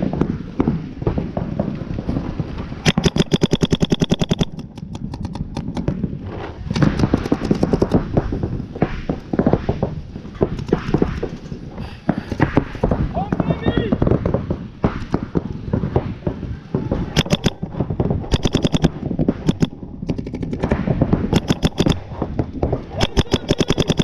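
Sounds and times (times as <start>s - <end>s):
pops and hits: 0.0s - 24.0s
paintball marker firing: 2.8s - 5.9s, 6.7s - 9.6s, 10.4s - 11.5s, 17.1s - 24.0s.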